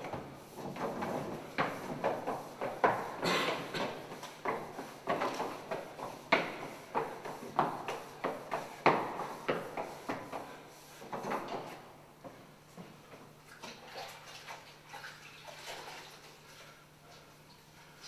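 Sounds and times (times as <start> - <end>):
wet sponge sweeping chalkboard: 0.1 - 3.2, 3.8 - 11.8.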